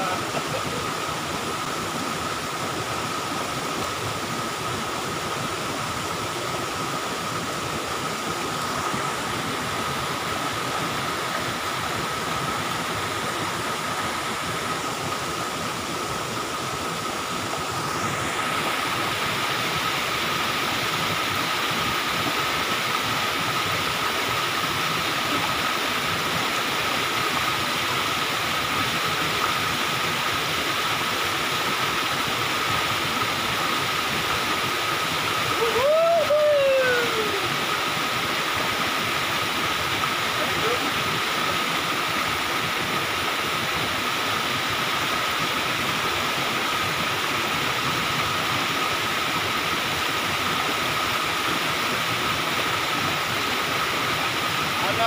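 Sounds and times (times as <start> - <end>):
waterfall rushing over rock: 0.0 - 55.0
man exclaiming: 35.5 - 37.5.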